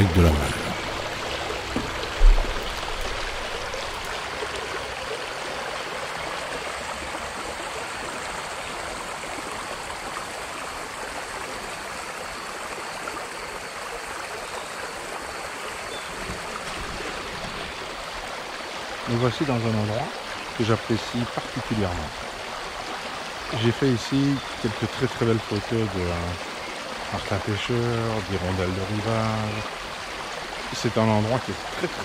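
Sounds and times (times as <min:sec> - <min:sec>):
stream rippling over stones: 0:00.0 - 0:32.0
low thump: 0:01.7 - 0:03.9.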